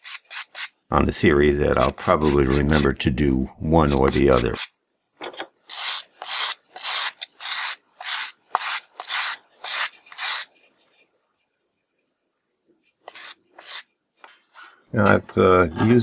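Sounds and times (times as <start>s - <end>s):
file scraping on wire bristles: 0.0s - 0.8s, 1.8s - 2.9s, 3.8s - 4.7s, 5.7s - 10.6s, 13.1s - 13.9s.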